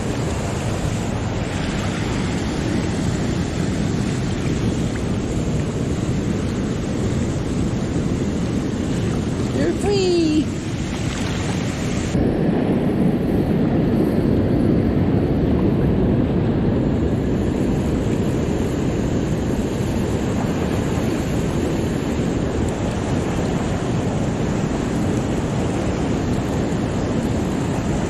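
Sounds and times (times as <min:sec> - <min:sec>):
water rushing through spillway: 0:00.0 - 0:13.8.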